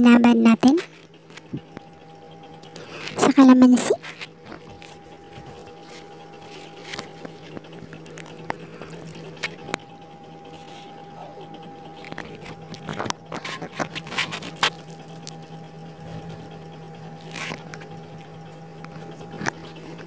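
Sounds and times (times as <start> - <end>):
faint steady hum: 0.0 - 20.0
small clicks and ticks: 0.5 - 20.0.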